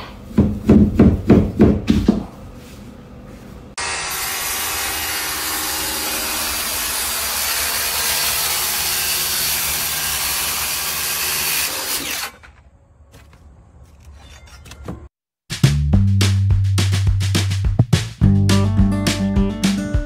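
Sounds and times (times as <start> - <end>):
circular saw cutting wood: 3.8 - 12.7.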